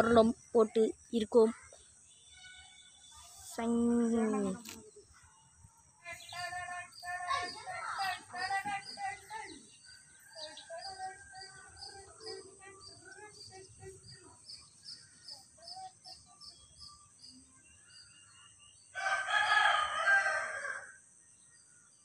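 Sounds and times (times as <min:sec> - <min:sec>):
small bird chirping: 0:01.0 - 0:19.0
rooster crowing: 0:18.9 - 0:21.0.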